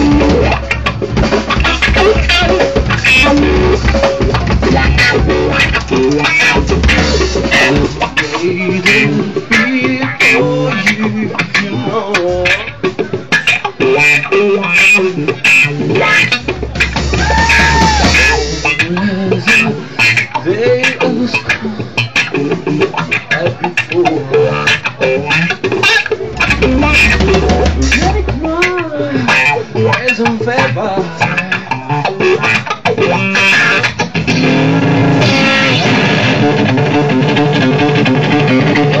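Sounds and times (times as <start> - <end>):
electric guitar bending note: 0.0 - 12.8, 21.1 - 39.0
blues-rock band playing: 0.0 - 39.0.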